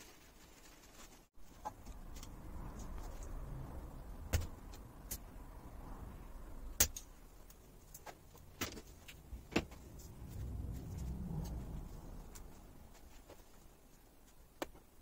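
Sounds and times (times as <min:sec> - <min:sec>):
low handling rumble: 0:01.8 - 0:13.3.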